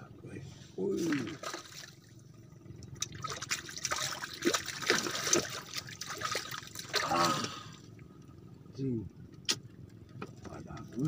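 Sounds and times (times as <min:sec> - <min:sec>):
fish splashing at water surface: 0:01.0 - 0:02.1, 0:03.0 - 0:07.3.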